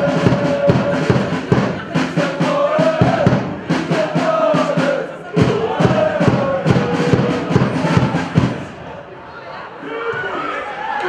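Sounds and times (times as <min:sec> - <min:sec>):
steady drum beat: 0:00.0 - 0:08.8
voices chanting together: 0:00.0 - 0:09.2.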